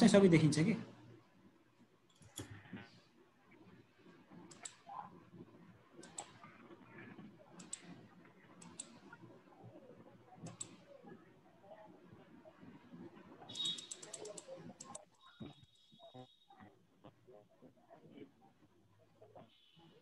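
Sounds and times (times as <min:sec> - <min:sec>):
computer mouse clicking: 0:02.1 - 0:02.9, 0:04.0 - 0:11.1, 0:12.7 - 0:15.8.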